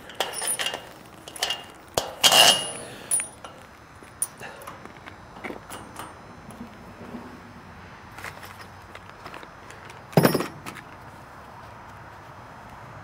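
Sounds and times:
metal hardware clinking: 0:00.0 - 0:04.8, 0:05.4 - 0:06.2, 0:10.2 - 0:10.6.

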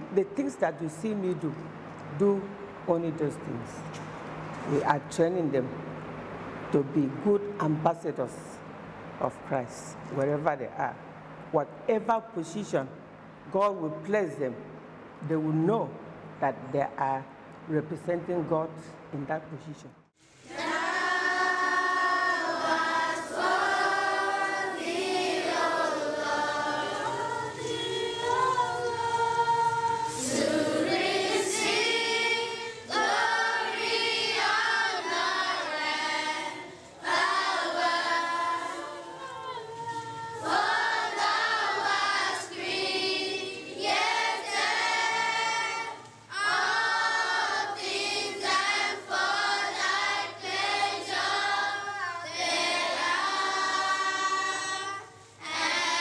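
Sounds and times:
children's choir singing: 0:20.4 - 0:56.0.

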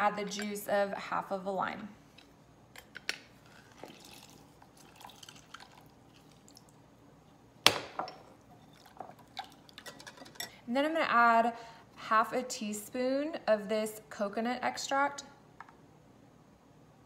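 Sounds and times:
juice dripping into glass bowl: 0:03.6 - 0:06.8, 0:08.4 - 0:10.0.

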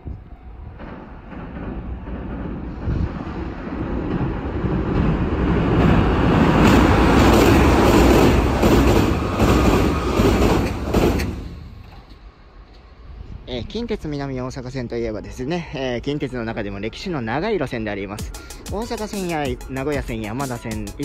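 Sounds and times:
train wheel clacks: 0:00.0 - 0:12.9
electric train rumble: 0:00.0 - 0:21.0.

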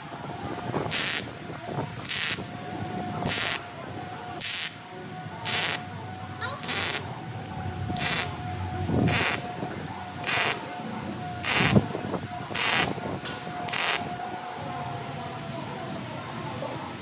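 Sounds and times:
welder arc crackling: 0:00.9 - 0:01.3, 0:02.0 - 0:02.5, 0:03.2 - 0:03.6, 0:04.4 - 0:04.8, 0:05.4 - 0:05.9, 0:08.0 - 0:08.4, 0:09.1 - 0:09.5, 0:10.2 - 0:10.7, 0:11.4 - 0:11.9, 0:13.7 - 0:14.1.

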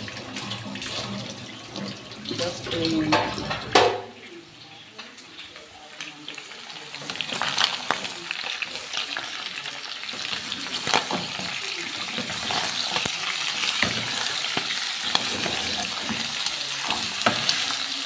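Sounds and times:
onions and meat sizzling in pan: 0:00.0 - 0:18.0
utensil clicking and scraping pan: 0:10.1 - 0:17.8.

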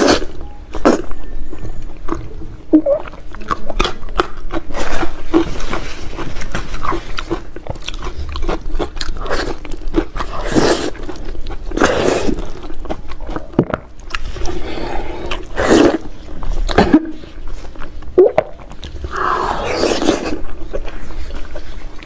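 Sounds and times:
chewing: 0:00.0 - 0:22.0
wet slurping and sucking: 0:19.0 - 0:20.6.

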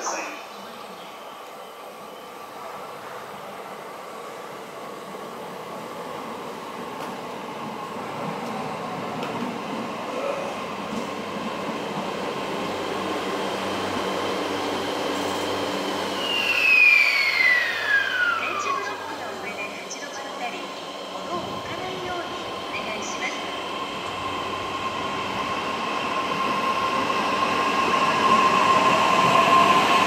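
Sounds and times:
electric train rolling: 0:03.8 - 0:30.0
train motor whine: 0:15.2 - 0:19.4.

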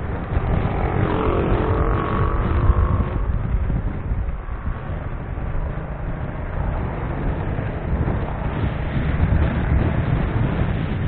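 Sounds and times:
motorcycle and road rumble: 0:00.0 - 0:11.0
wind buffeting microphone: 0:00.0 - 0:11.0.

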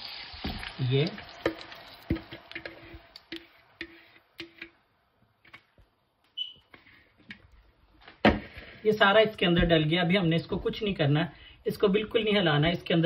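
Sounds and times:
chicken sizzling in oil: 0:00.0 - 0:04.7
bowl squeaking: 0:06.3 - 0:07.0.

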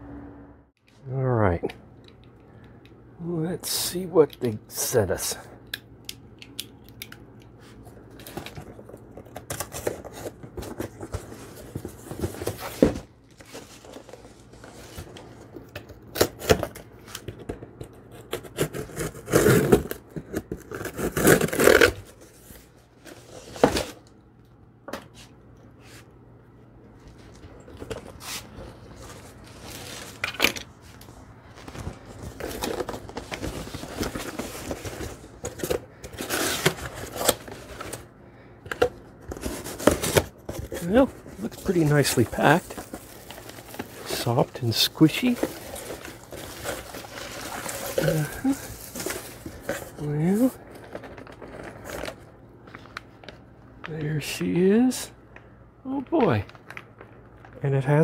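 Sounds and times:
paper packing rustling: 0:07.6 - 0:24.1, 0:26.9 - 0:55.0
cardboard flaps tearing: 0:18.1 - 0:22.4.

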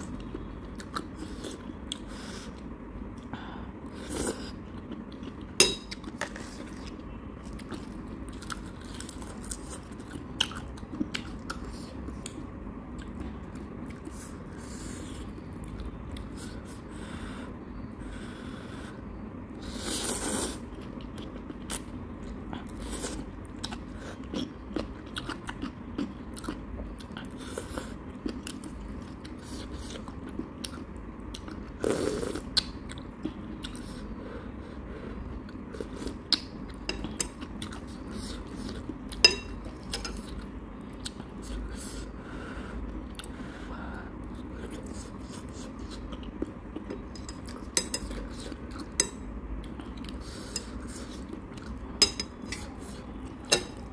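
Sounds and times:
chopsticks clinking against bowl: 0:39.2 - 0:40.2, 0:47.1 - 0:48.2, 0:48.8 - 0:49.2, 0:52.0 - 0:53.8.

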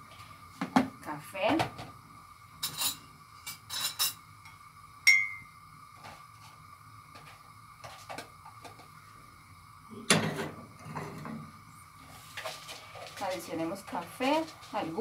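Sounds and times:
faint high whine: 0:00.0 - 0:15.0
ceramic mug clinking: 0:05.0 - 0:05.5.

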